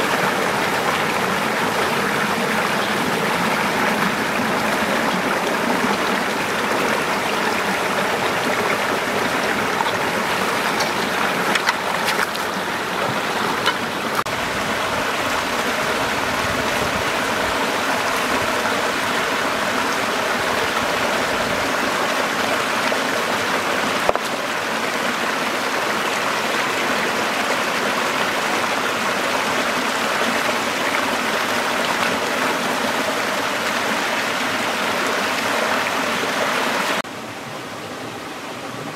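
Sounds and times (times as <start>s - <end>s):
stream rushing over stones: 0.0s - 38.9s.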